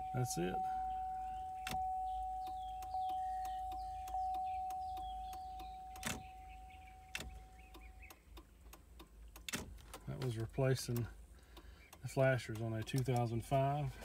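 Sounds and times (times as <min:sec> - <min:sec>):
dashboard warning chime: 0:00.0 - 0:08.1.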